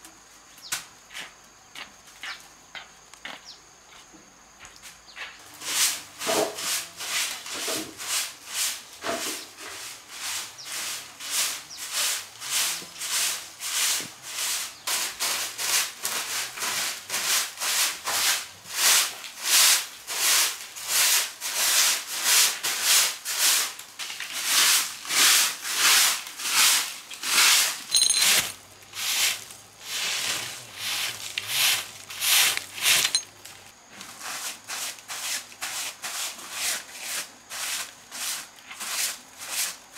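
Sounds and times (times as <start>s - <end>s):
hand tool rubbing across workpiece: 25.2s - 33.2s.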